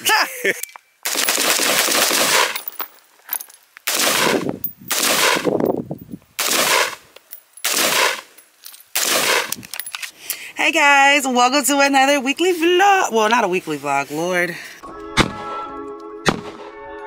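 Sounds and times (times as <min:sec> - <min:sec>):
rapid gunfire bursts: 0:01.1 - 0:02.6, 0:03.9 - 0:05.5, 0:06.4 - 0:07.0, 0:07.7 - 0:08.3, 0:09.0 - 0:09.5.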